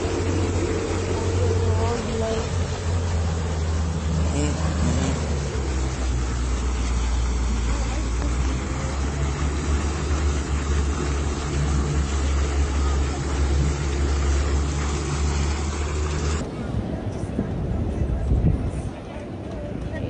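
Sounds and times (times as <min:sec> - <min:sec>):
outboard motor running: 0:00.0 - 0:16.4
churning prop wash: 0:00.0 - 0:20.0.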